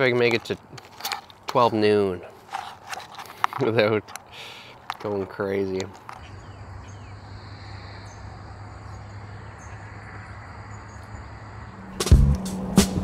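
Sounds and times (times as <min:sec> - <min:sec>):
insects buzzing: 0:06.2 - 0:12.1
music with a beat: 0:12.0 - 0:13.0.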